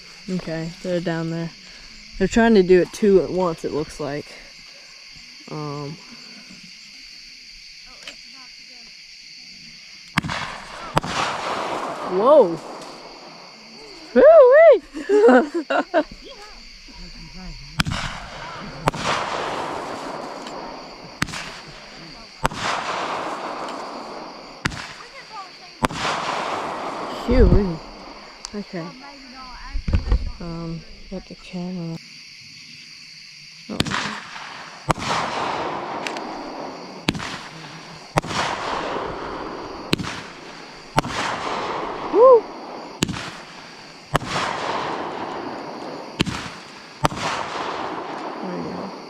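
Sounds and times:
fireworks hiss: 0.0 - 31.2, 33.7 - 49.0
fireworks bangs: 10.0 - 30.4, 33.7 - 49.0.

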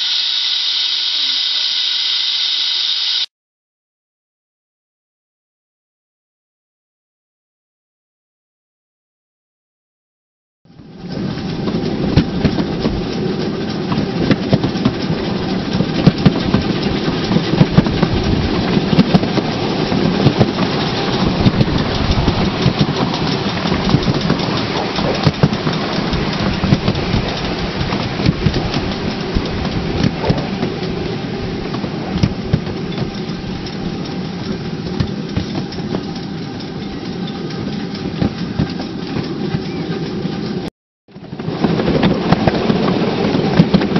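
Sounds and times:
miniature train rumbling on track: 10.7 - 43.9
wheels clicking on rails: 10.7 - 43.9.

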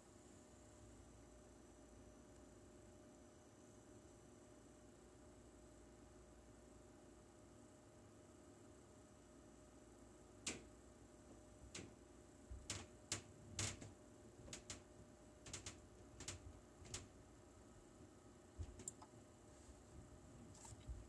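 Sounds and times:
computer keys clicking: 18.6 - 19.1.

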